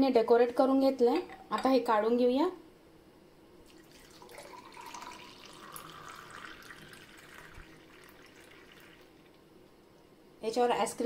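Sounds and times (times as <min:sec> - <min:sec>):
milkshake pouring into glass: 0:03.6 - 0:09.4.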